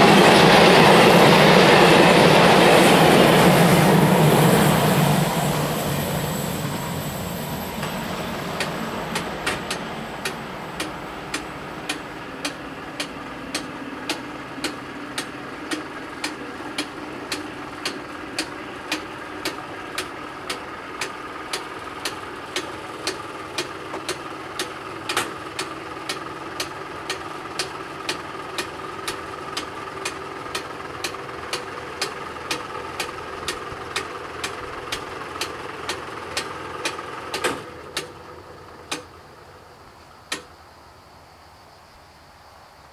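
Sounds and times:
barrier motor hum: 0.0s - 40.6s
sharp ticks: 7.8s - 38.2s, 38.8s - 39.2s, 40.3s - 40.6s.

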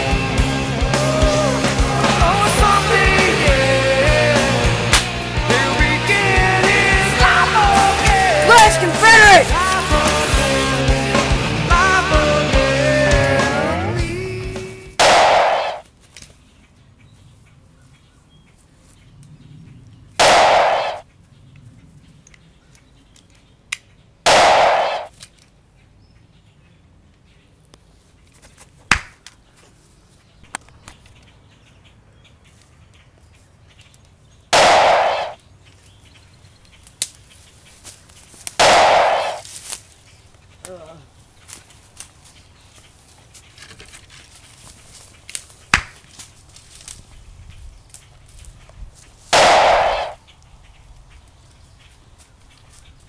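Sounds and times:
gunshot bangs: 15.0s - 15.8s, 20.2s - 21.0s, 24.3s - 25.1s, 34.6s - 35.4s, 38.6s - 39.4s, 49.4s - 50.2s.

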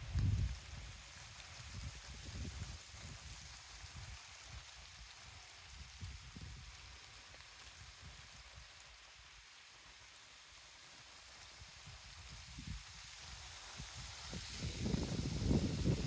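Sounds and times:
wind rumble on microphone: 0.0s - 7.1s, 11.6s - 16.0s
leaves rustling in a breeze: 0.0s - 16.0s.

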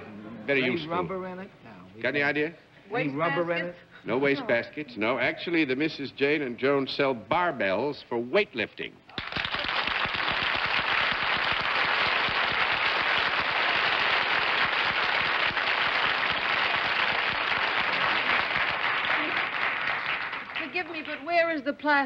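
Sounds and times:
audience applauding: 9.1s - 21.3s.

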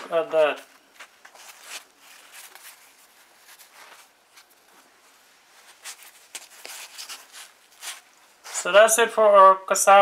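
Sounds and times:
flatbread tearing and rustling: 1.0s - 8.6s.

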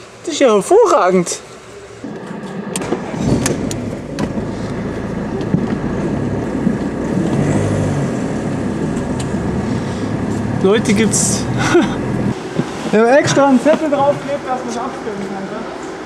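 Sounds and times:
car engine running: 2.0s - 12.4s.

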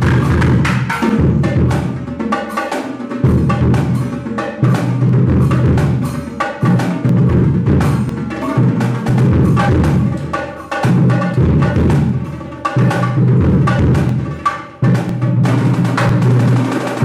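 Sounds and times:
deep bass drum beats: 0.0s - 2.1s, 6.7s - 14.3s
rapid snare drum strokes: 0.0s - 17.0s.

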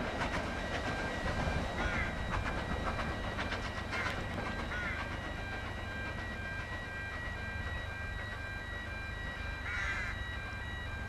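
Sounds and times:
wheel clicks over rail joints: 0.0s - 7.8s
steam train rumbling past: 0.0s - 11.0s.

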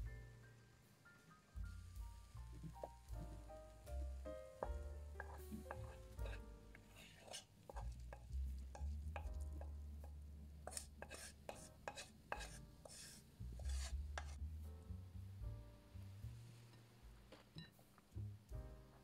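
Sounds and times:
utensil scraping frying pan: 4.6s - 9.4s, 10.6s - 14.4s.

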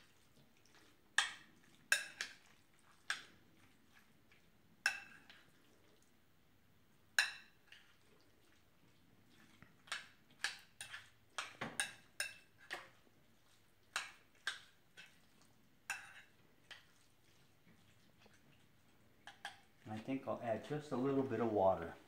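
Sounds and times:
utensil clinking on ceramic dish: 1.2s - 2.4s, 9.9s - 13.0s, 15.9s - 16.9s.

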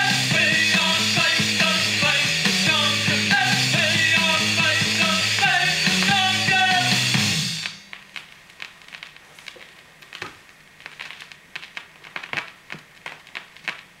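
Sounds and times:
song: 0.0s - 7.9s
vinyl surface hiss and crackles: 0.0s - 14.0s.

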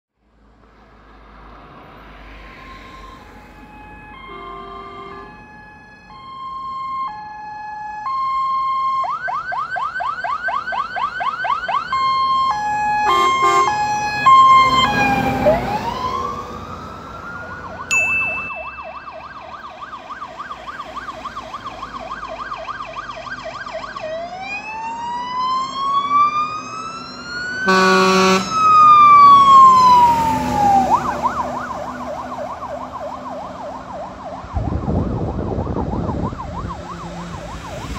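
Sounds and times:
truck passing close: 0.3s - 8.8s, 10.6s - 37.9s
electronic sirens: 1.6s - 37.9s
air horn blasts: 4.2s - 5.4s, 13.0s - 13.8s, 27.6s - 28.6s.

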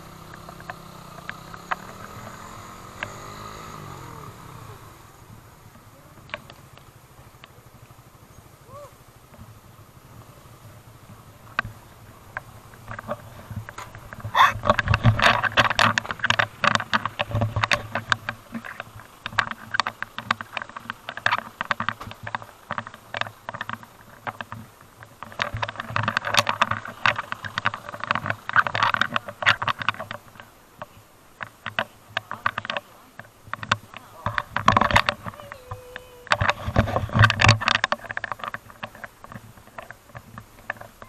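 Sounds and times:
microphone handling noise: 8.7s - 41.0s.

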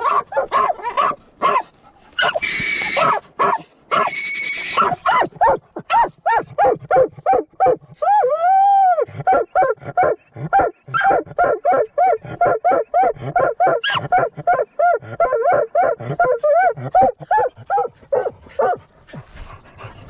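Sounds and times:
dog barking rapidly: 0.0s - 7.8s, 9.3s - 18.8s
dog howling: 11.0s - 18.8s.

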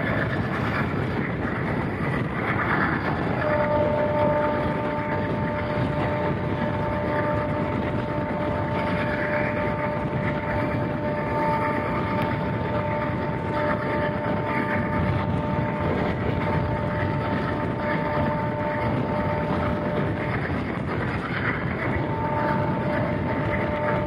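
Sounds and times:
train wheels rumbling on rails: 0.0s - 24.0s
steady two-note tone: 3.2s - 20.2s.

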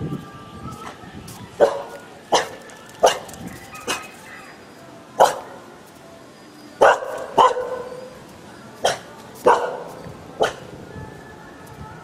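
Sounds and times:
dog barking: 1.6s - 4.1s, 5.2s - 5.5s, 6.8s - 8.1s, 8.8s - 10.6s.

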